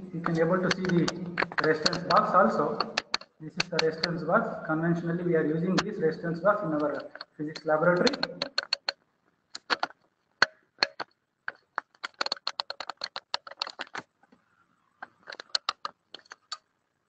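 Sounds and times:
quick sharp clicks and taps: 0:00.2 - 0:04.3, 0:06.7 - 0:14.1, 0:15.0 - 0:16.7.

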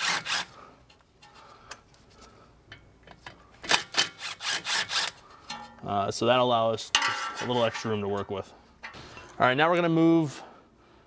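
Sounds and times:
cordless ratchet strokes: 0:03.7 - 0:05.2.

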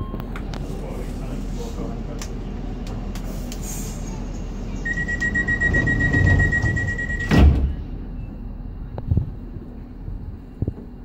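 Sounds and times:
high warning beep: 0:04.8 - 0:07.4
sliding doors thudding shut: 0:05.5 - 0:07.9.

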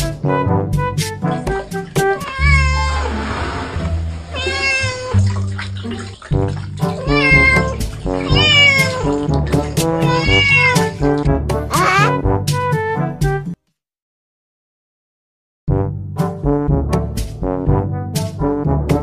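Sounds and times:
background music: 0:00.0 - 0:13.6, 0:15.7 - 0:19.0
cat meowing: 0:02.1 - 0:03.2, 0:04.3 - 0:05.2, 0:06.9 - 0:09.3, 0:10.0 - 0:11.1, 0:11.7 - 0:12.2.

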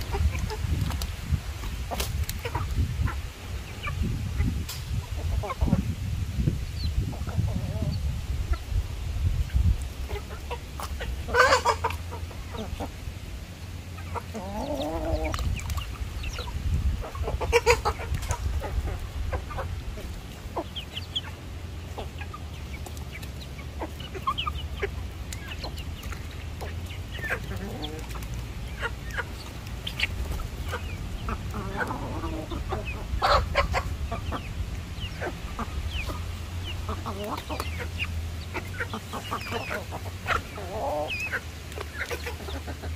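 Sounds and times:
hens and roosters clucking: 0:00.0 - 0:42.9
chicken squawks: 0:10.0 - 0:13.0, 0:14.0 - 0:15.5, 0:16.4 - 0:21.4, 0:26.6 - 0:42.9.

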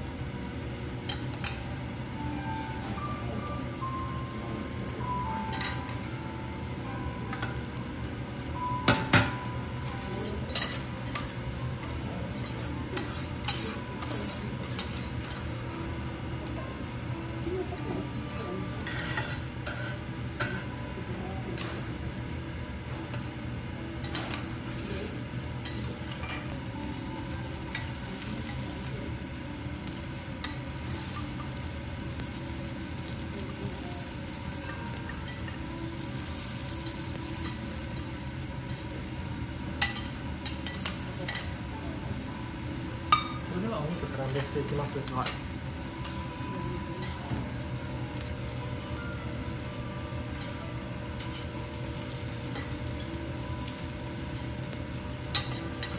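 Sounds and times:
meat and onion sizzling on griddle: 0:04.3 - 0:55.9
metal spatulas scraping and clicking: 0:10.2 - 0:15.5, 0:18.3 - 0:20.8, 0:39.8 - 0:41.5.

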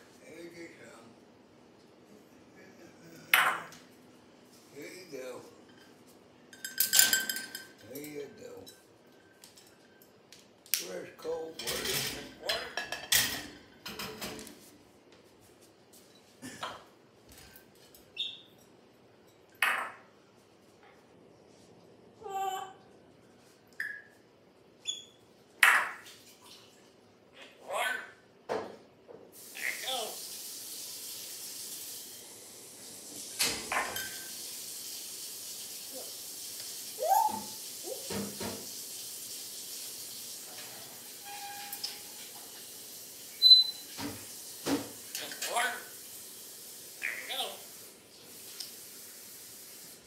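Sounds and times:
parrot chirp: 0:18.2 - 0:18.6, 0:19.6 - 0:20.1, 0:24.8 - 0:26.0, 0:43.3 - 0:43.9, 0:47.0 - 0:47.6
parrot squawk: 0:19.6 - 0:20.0, 0:25.6 - 0:26.0, 0:27.3 - 0:28.2, 0:29.5 - 0:30.2, 0:37.0 - 0:37.6, 0:47.0 - 0:47.6
steady hiss: 0:29.3 - 0:50.0.

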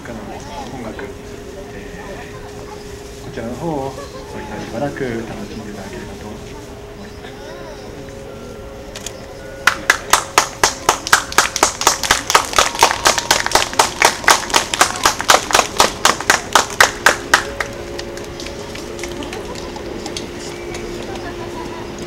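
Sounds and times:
hands clapping: 0:09.6 - 0:21.2.

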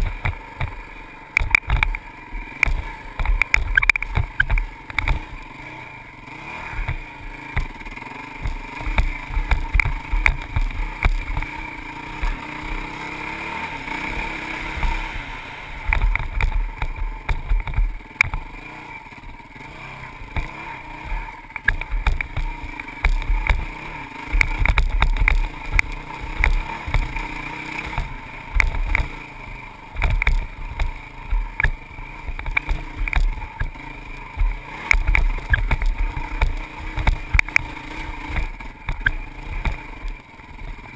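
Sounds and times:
dirt bike engine revving: 0:00.0 - 0:40.9
bike jolting over rough trail: 0:06.4 - 0:40.9.

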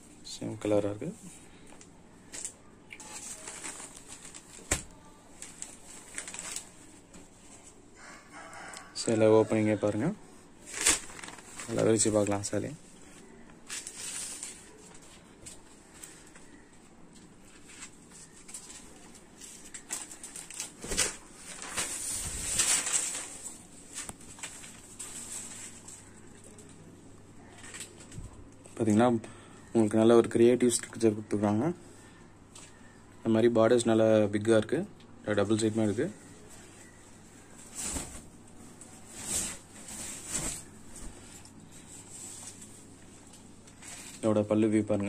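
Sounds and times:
fabric rustling: 0:02.2 - 0:07.8, 0:10.6 - 0:16.6, 0:17.2 - 0:26.8, 0:35.5 - 0:45.0.

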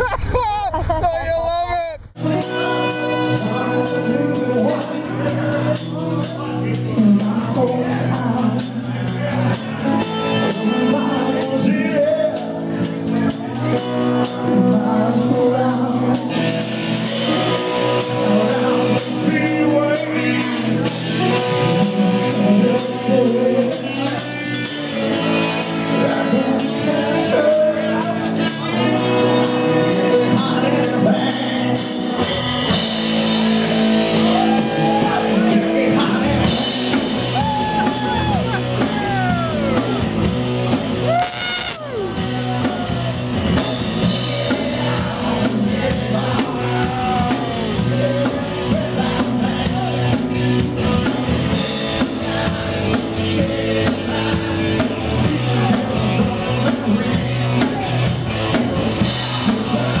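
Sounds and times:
rock song with singer: 0:00.0 - 1:00.0
steady drum beat: 0:36.4 - 1:00.0.

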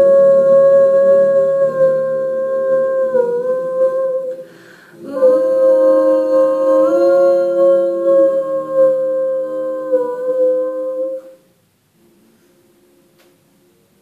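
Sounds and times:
women singing in harmony: 0:05.0 - 0:11.4.

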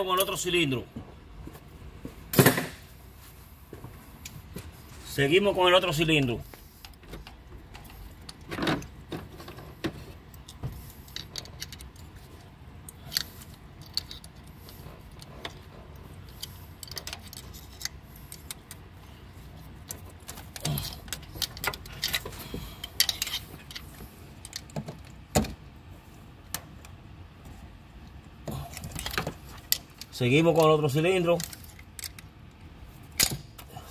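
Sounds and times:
screwdriver levering metal parts: 0:12.8 - 0:18.8, 0:19.8 - 0:25.2.

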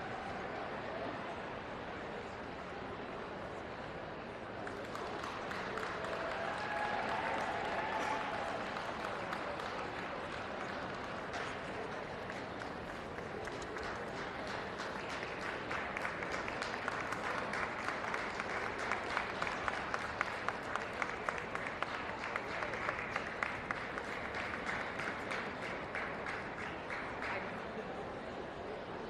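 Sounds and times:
crowd hubbub: 0:00.0 - 0:29.0
audience applauding: 0:04.6 - 0:27.7.

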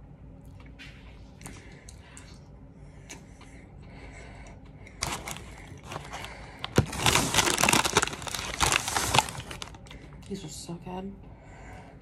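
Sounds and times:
rustling and crackling handling: 0:05.0 - 0:10.0.

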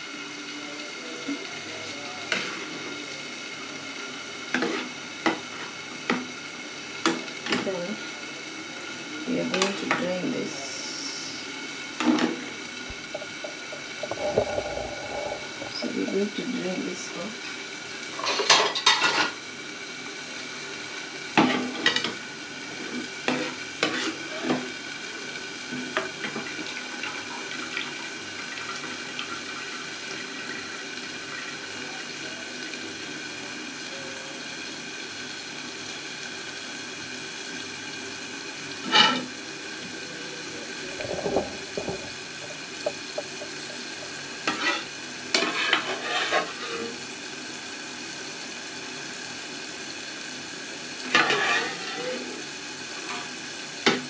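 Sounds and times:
pots and pans clattering: 0:12.9 - 0:14.0, 0:41.1 - 0:47.0.

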